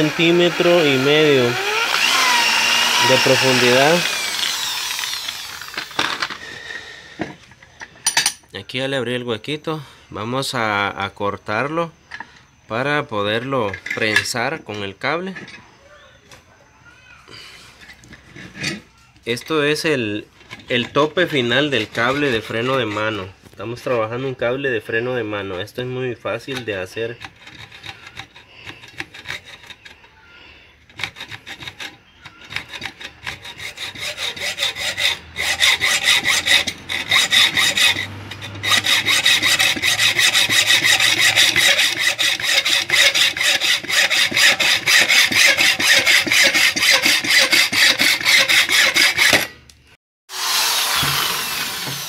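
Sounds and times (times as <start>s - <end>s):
hacksaw cutting metal rod: 0.0s - 6.4s, 26.5s - 30.0s, 30.9s - 49.6s, 50.3s - 52.0s.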